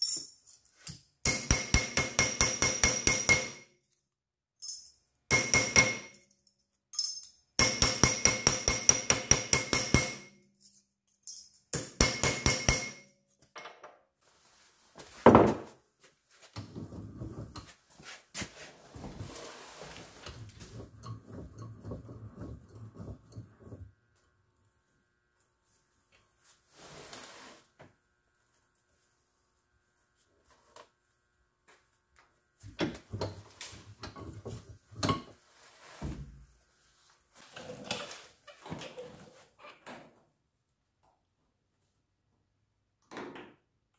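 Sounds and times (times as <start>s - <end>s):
hammer striking sheet steel: 1.3s - 3.7s, 5.3s - 6.2s, 7.6s - 10.4s, 11.8s - 13.1s.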